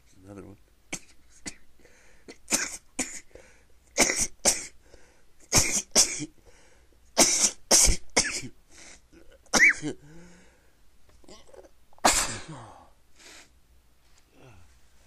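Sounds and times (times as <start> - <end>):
person sneezing: 4.0 - 4.8, 5.5 - 6.3, 7.2 - 9.0, 9.6 - 10.2, 12.0 - 12.9.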